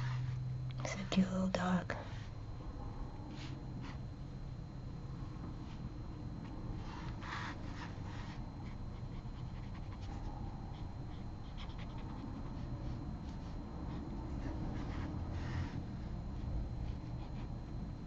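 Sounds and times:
steady low hum: 0.0 - 18.0
pen scratching on paper: 6.8 - 15.8.

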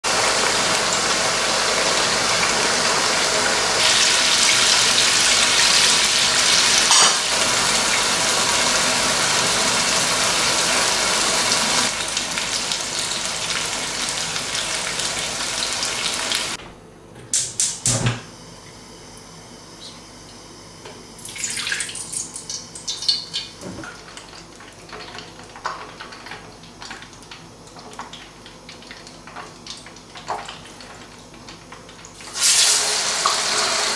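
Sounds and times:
water running from tap: 0.1 - 16.6, 21.2 - 33.9
dishes clinking: 6.9 - 7.3.

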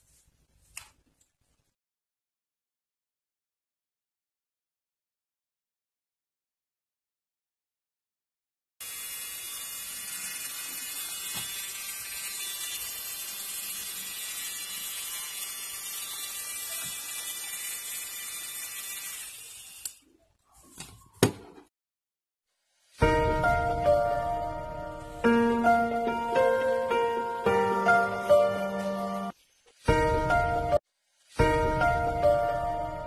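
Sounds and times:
nail drill whining: 8.8 - 20.0
music: 23.0 - 30.8, 31.4 - 33.0.

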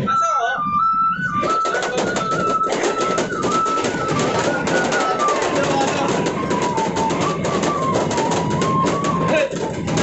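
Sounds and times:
bamboo flute melody: 0.0 - 10.0
rhythmic beat: 1.2 - 10.0.

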